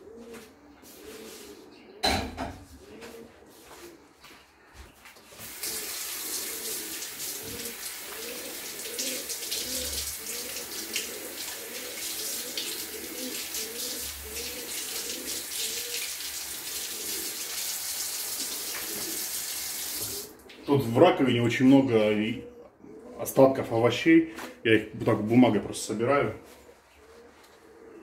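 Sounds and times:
tap water splashing into sink: 5.4 - 20.3.

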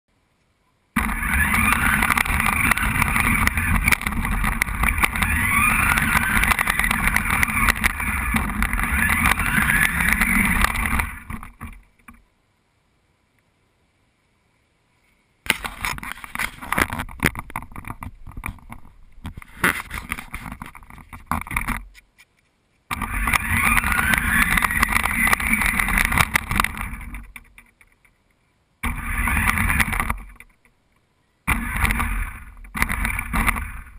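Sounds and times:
scattered clicks and crackles: 0.4 - 12.3, 15.4 - 33.9
toy car drivetrain rattling: 1.0 - 11.8, 22.9 - 28.1, 28.8 - 30.7, 31.5 - 33.9
toy car electric motor whining: 1.0 - 11.8, 22.9 - 27.4, 28.8 - 30.5, 31.5 - 33.9.

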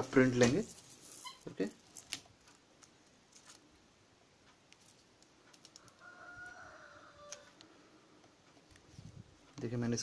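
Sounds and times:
faint rooster crow: 5.7 - 7.7.

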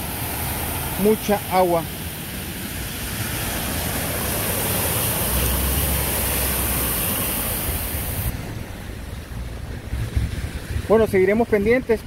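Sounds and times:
car tyres spraying through water: 0.0 - 11.1.

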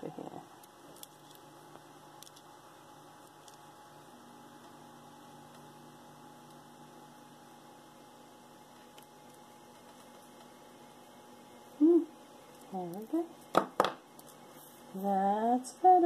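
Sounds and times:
faint electrical hum: 0.0 - 16.0.

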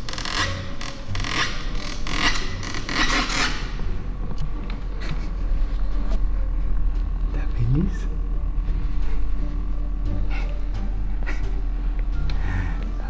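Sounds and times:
rubbing scraping noises: 0.0 - 3.8.

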